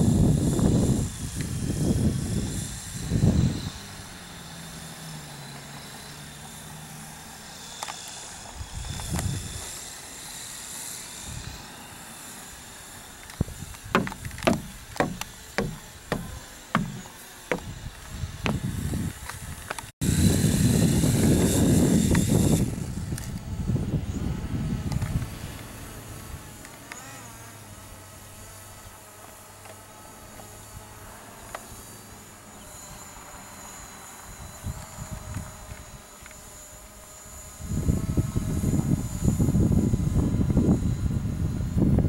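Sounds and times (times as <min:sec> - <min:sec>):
knocks on wooden boards: 0:14.0 - 0:17.7.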